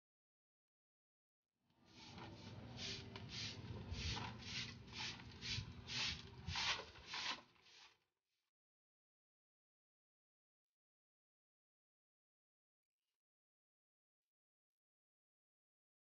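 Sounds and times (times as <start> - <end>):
broom sweeping concrete: 1.9 - 8.0.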